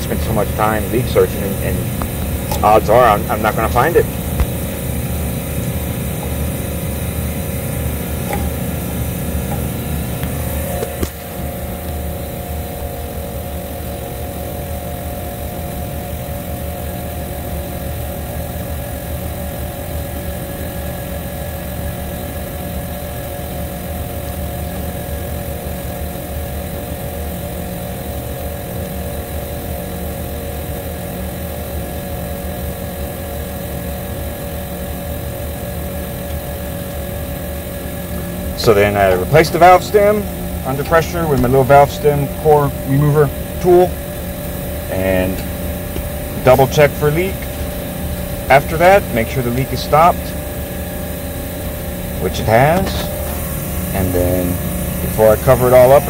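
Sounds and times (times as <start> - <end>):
steady tones: 0.0 - 13.2, 36.9 - 56.0
machine humming: 0.0 - 56.0.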